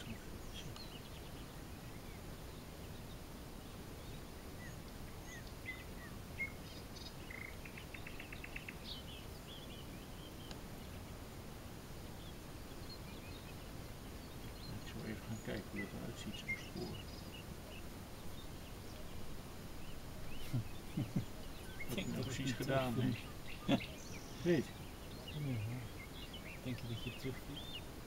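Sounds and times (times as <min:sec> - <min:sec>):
low background hiss: 0:00.0 - 0:28.0
songbird chirps: 0:00.0 - 0:28.0
bird trill: 0:12.2 - 0:28.0.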